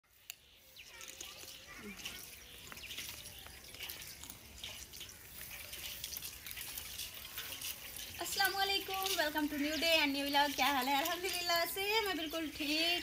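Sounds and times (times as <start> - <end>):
dry stalks rustling and crackling: 0.1 - 13.0.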